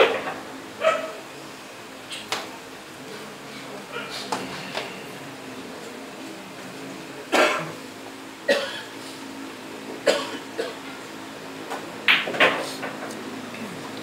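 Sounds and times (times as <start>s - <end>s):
pool balls clacking: 0.0s - 0.6s, 11.6s - 13.1s
person coughing: 7.3s - 7.8s, 8.5s - 8.9s, 10.0s - 10.8s.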